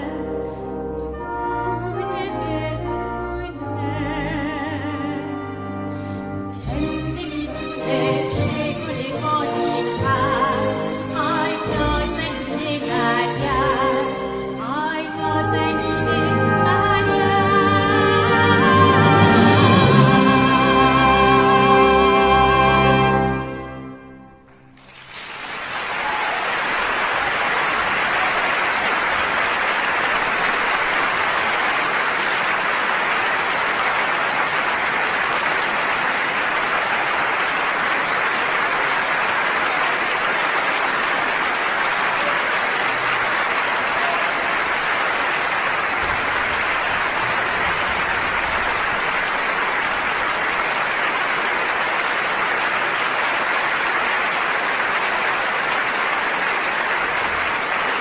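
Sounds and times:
audience applauding: 24.4 - 58.0.

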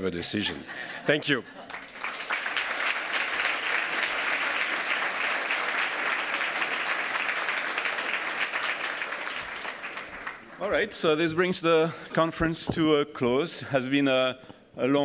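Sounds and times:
audience applauding: 1.6 - 10.7.

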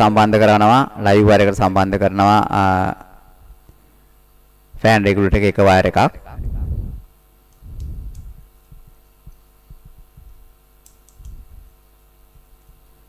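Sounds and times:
faint light clicks: 10.8 - 11.4.

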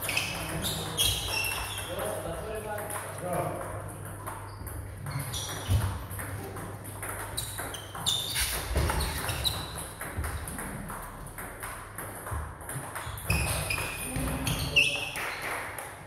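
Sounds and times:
table tennis balls clicking: 0.0 - 16.0.

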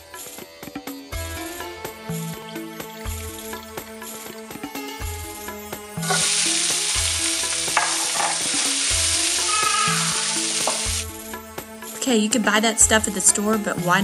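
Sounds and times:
vegetables sizzling in a pan: 6.0 - 11.1.

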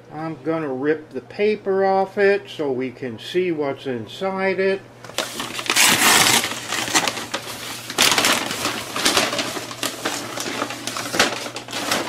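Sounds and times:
paper tearing and crumpling: 5.1 - 12.0.

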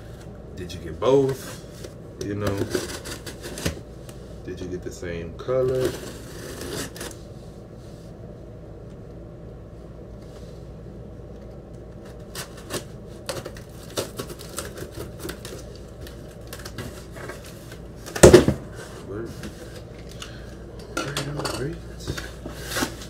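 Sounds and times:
cardboard handling noise: 1.2 - 3.9, 5.6 - 7.2, 12.0 - 20.2, 22.0 - 23.0
box cutter slicing packing tape: 5.8 - 7.2.

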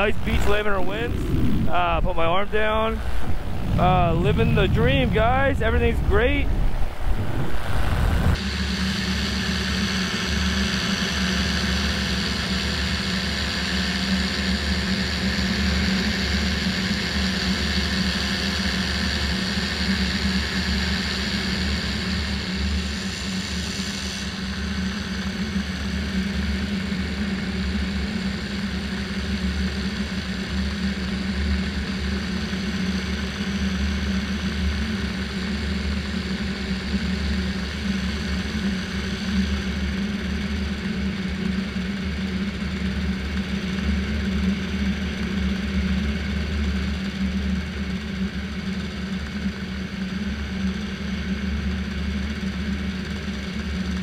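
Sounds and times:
paramotor engine droning: 0.0 - 54.0.

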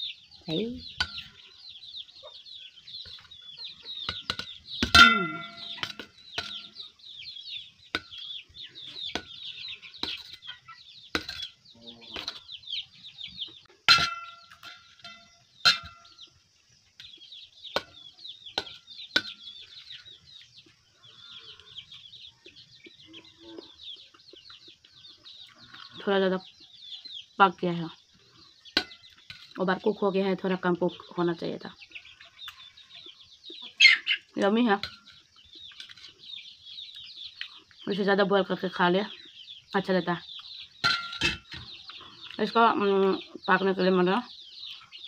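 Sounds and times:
high-pitched chirping: 3.0 - 16.3
spoon clinking on steel plate: 4.1 - 6.7, 13.9 - 16.1, 40.8 - 41.7.

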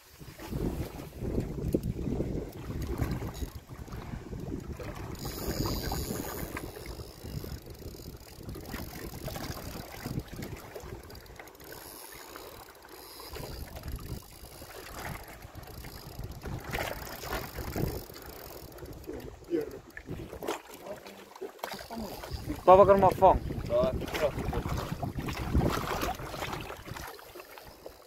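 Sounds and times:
wind buffeting microphone: 0.0 - 12.0, 13.3 - 20.6, 21.9 - 27.1
fishing reel clicks: 1.7 - 3.7, 4.4 - 20.0, 21.6 - 23.2.

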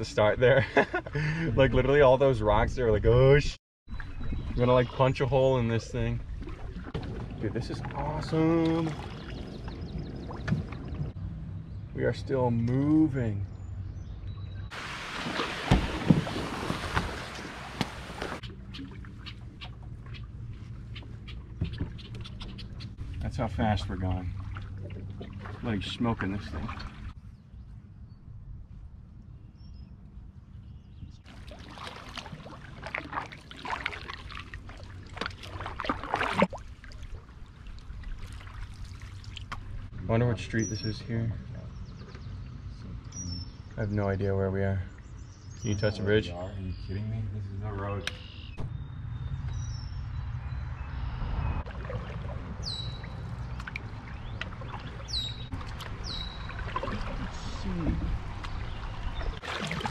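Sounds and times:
water splashing around canoe: 3.9 - 11.2, 14.7 - 27.2, 31.2 - 39.9, 51.6 - 59.9
faint knocks and drips: 17.8 - 23.0, 53.1 - 59.9
low steady rumble: 18.3 - 31.5.

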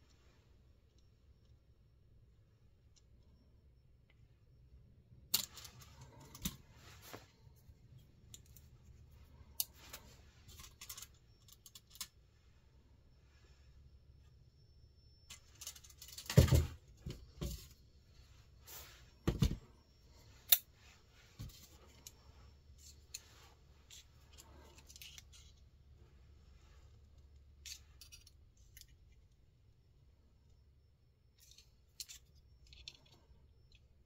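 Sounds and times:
small metal clicks: 9.4 - 12.2, 27.2 - 29.3, 31.3 - 34.0.

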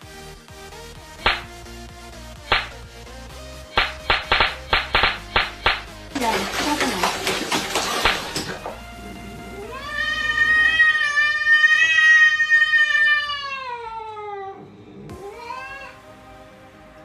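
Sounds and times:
cat yowling: 9.6 - 16.0.

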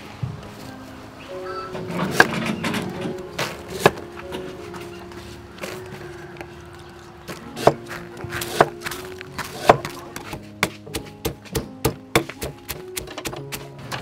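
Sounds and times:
stone pestle knocking in mortar: 7.6 - 13.7.

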